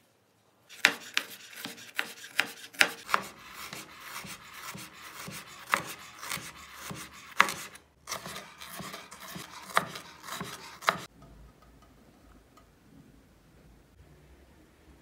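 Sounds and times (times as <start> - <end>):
knife slicing potato: 0.7 - 11.1.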